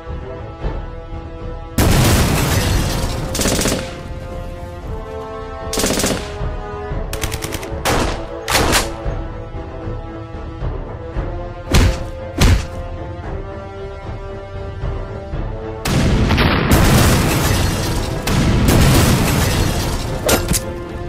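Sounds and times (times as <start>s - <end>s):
background music: 0.0s - 21.0s
machine-gun fire: 1.8s - 4.1s, 5.8s - 6.4s.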